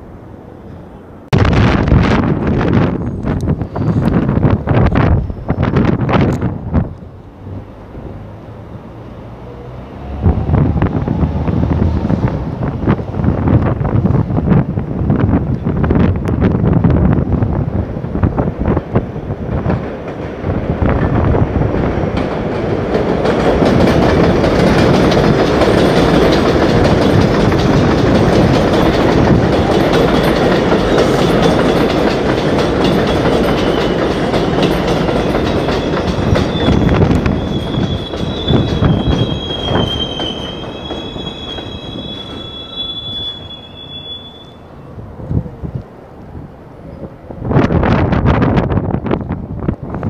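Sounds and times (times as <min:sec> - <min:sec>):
train wheels rumbling and clattering: 0:00.8 - 0:44.4
high wavering wheel squeal: 0:33.0 - 0:34.3, 0:35.0 - 0:45.0.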